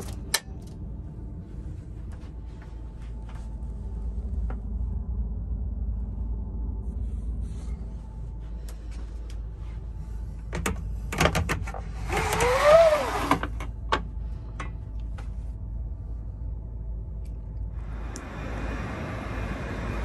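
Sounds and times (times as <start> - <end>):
steady low hum: 0.0 - 20.0
blind sliding up: 11.8 - 13.6
whirring tone: 11.9 - 13.7, 17.5 - 20.0.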